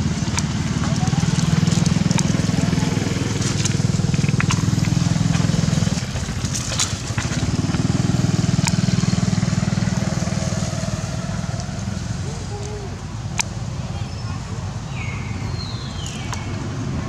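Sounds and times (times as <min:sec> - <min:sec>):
dry leaves crackling: 0:00.0 - 0:13.0
small engine running: 0:00.0 - 0:13.2.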